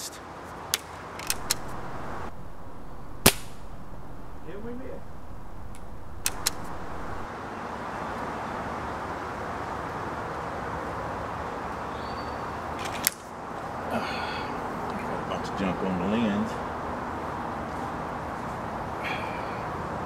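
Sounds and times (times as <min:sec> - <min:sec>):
outdoor background hiss: 0:00.0 - 0:20.0
air rifle clicks: 0:01.2 - 0:07.2.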